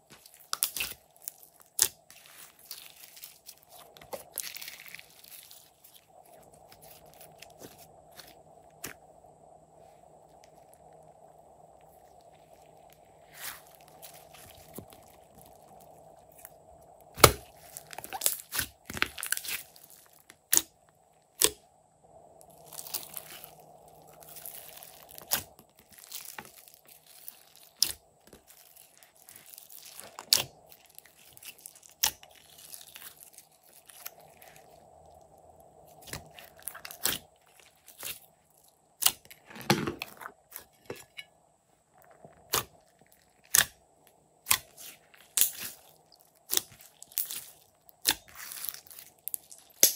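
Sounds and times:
slime squishing: 0:00.0 - 0:09.0, 0:11.8 - 0:21.6, 0:22.4 - 0:41.2, 0:42.0 - 0:43.8, 0:44.4 - 0:49.9.

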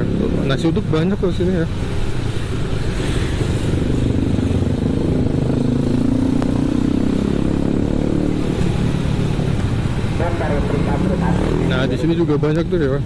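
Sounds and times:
motorcycle engine running: 0:02.9 - 0:10.2.

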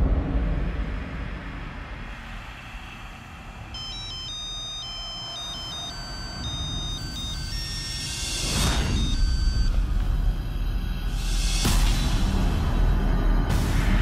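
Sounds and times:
low background music: 0:03.7 - 0:14.0
high stepped phone beeps: 0:03.8 - 0:09.9.

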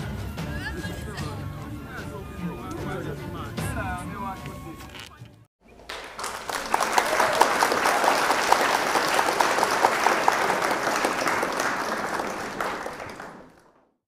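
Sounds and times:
crowd applause: 0:05.7 - 0:14.0.

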